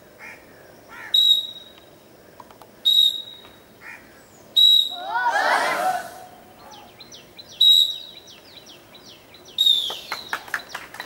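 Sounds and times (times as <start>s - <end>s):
birds chirping: 0.3s - 11.0s
whistle blasts: 1.2s - 1.7s, 2.8s - 3.5s, 4.6s - 5.1s, 7.6s - 8.0s, 9.6s - 10.0s
hand claps: 9.8s - 11.0s.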